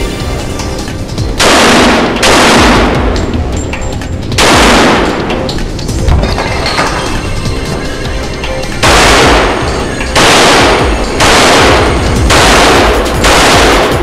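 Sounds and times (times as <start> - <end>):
background music: 0.0 - 14.0
pistol shots: 1.4 - 3.3, 4.4 - 5.6, 8.8 - 14.0.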